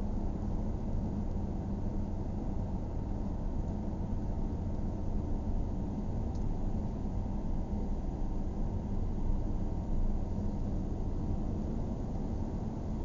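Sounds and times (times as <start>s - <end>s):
car road and engine rumble: 0.2s - 13.0s.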